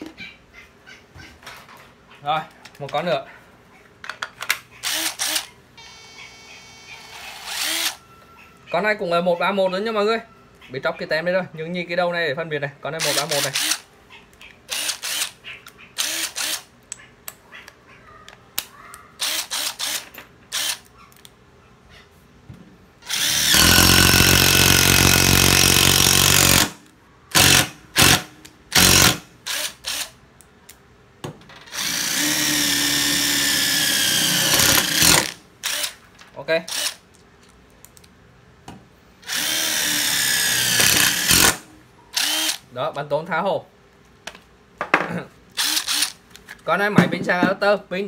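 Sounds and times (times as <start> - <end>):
cordless impact driver running: 4.8 - 6.0, 7.0 - 8.0, 13.0 - 13.8, 14.7 - 15.4, 16.0 - 16.7, 23.0 - 26.8, 27.4 - 30.1, 31.8 - 36.0, 36.7 - 37.0, 39.2 - 41.6, 42.2 - 42.6, 45.6 - 46.2.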